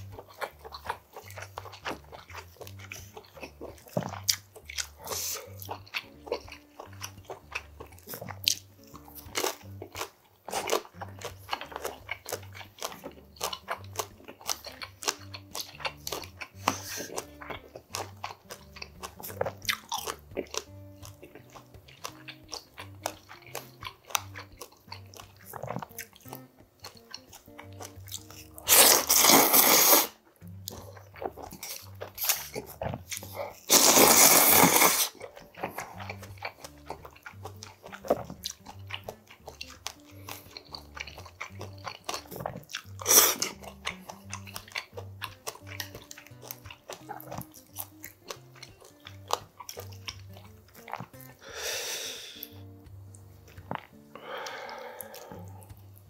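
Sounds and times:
man chewing: 0.0 - 56.0
slurping noodles: 4.8 - 8.4, 15.9 - 17.4, 27.6 - 36.8, 39.6 - 44.7, 53.6 - 55.9.

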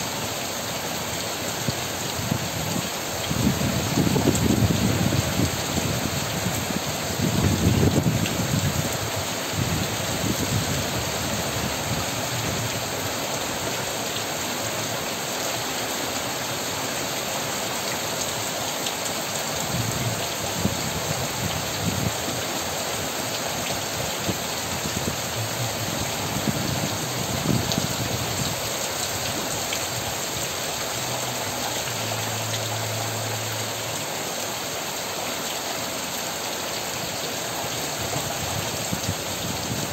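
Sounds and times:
heavy rain on leaves: 0.0 - 39.9.

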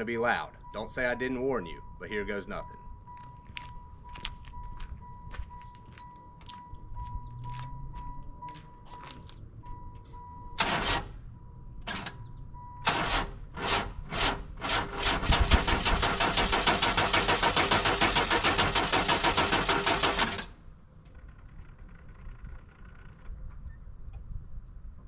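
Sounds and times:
car warning chime beeping: 0.0 - 12.9
car engine starting and pulsing: 6.3 - 20.6.

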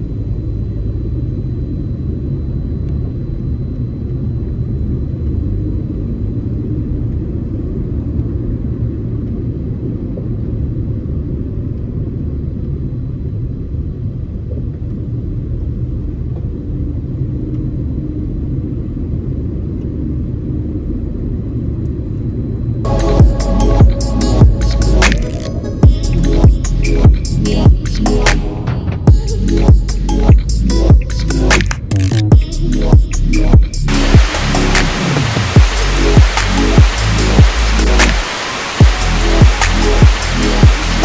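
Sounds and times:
road noise: 33.8 - 41.0.

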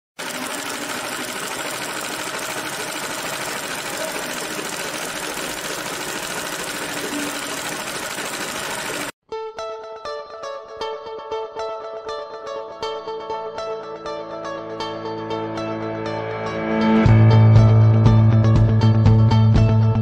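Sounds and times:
sewing machine stitching: 0.2 - 9.2.

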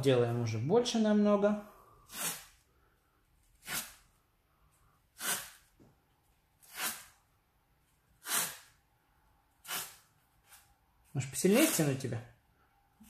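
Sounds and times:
tape ripping off a roll: 3.5 - 4.1, 5.2 - 5.8, 6.6 - 7.2, 8.2 - 8.8, 9.6 - 10.6.

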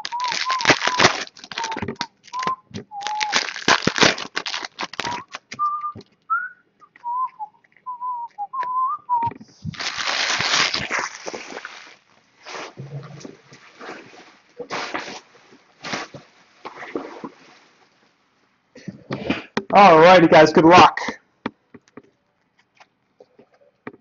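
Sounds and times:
person whistling a tune: 0.0 - 3.5, 5.0 - 9.3
cards rustling: 0.0 - 5.8, 9.6 - 12.0.

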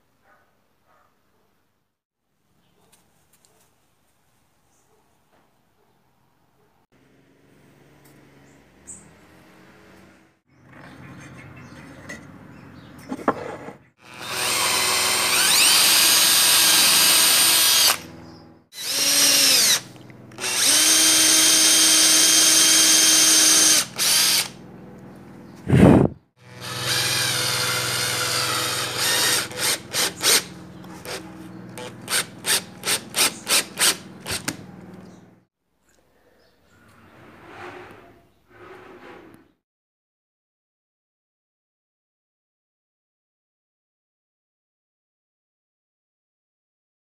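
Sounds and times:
power drill boring into wood: 14.0 - 18.1, 18.7 - 24.6, 26.4 - 31.2, 31.8 - 34.6.

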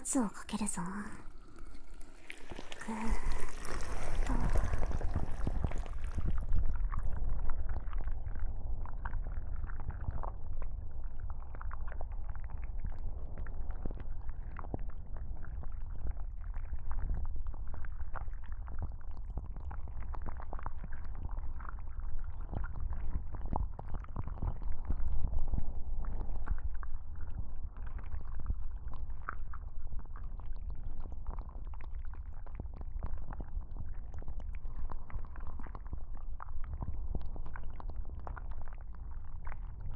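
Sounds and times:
deep rumbling on microphone: 1.2 - 17.9.

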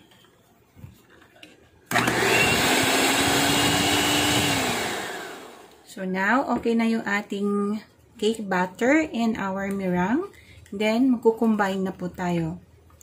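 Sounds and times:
electric hand mixer running: 1.9 - 5.8.

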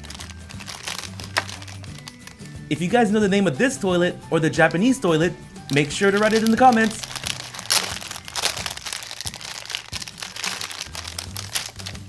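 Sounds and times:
plastic bag crinkling: 0.0 - 2.6, 5.6 - 12.0.

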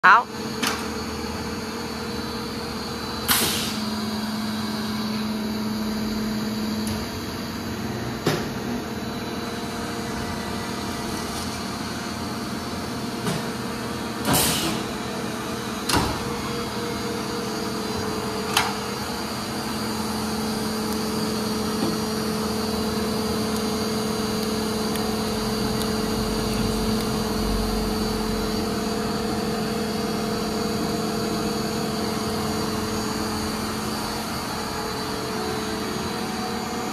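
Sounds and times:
welding machine humming: 0.8 - 36.9.

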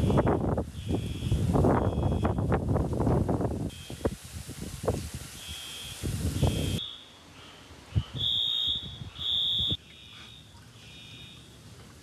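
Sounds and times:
electronic alarm beeping: 0.8 - 2.4, 5.4 - 7.1, 8.2 - 11.4.

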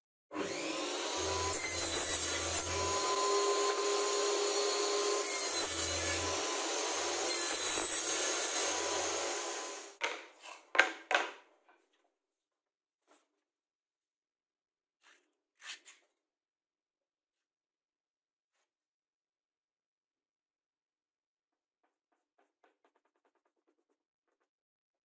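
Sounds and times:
table saw cutting plywood: 0.3 - 10.0.

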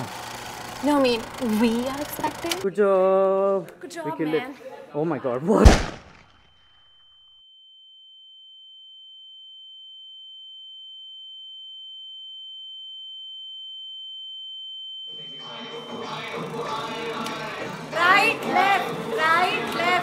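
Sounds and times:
voices: 0.8 - 5.8, 15.1 - 20.0
music: 15.1 - 20.0.

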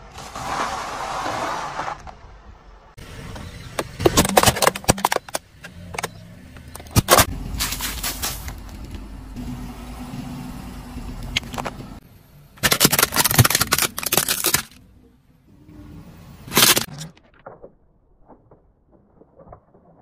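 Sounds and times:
tyre rolling over objects: 0.0 - 2.2
low engine hum: 5.4 - 12.6
plastic toy cracking and crunching: 12.6 - 14.8, 16.5 - 17.6.

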